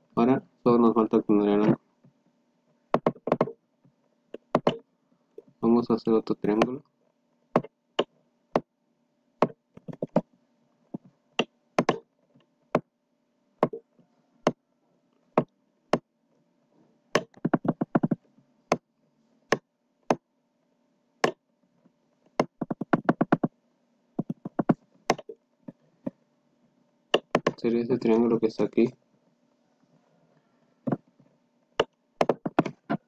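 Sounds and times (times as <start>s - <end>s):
faint steady hum: 0.0s - 33.0s
computer mouse clicking: 11.8s - 12.0s.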